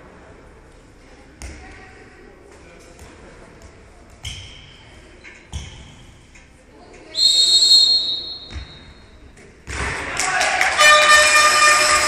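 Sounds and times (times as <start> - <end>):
ball bouncing on hall floor: 1.3 - 2.0, 2.8 - 6.2, 8.3 - 10.2
referee's whistle: 7.2 - 8.8.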